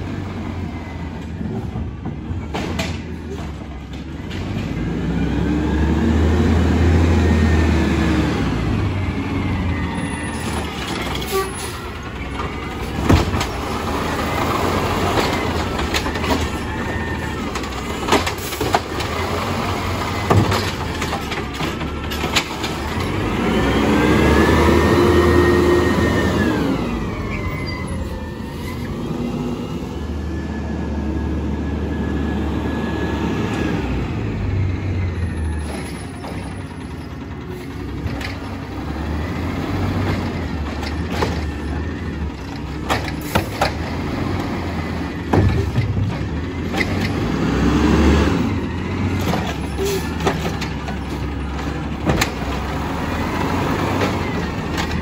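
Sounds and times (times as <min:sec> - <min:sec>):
garbage truck engine revving: 0:00.0 - 0:55.0
carts banging: 0:10.3 - 0:23.6, 0:48.4 - 0:55.0.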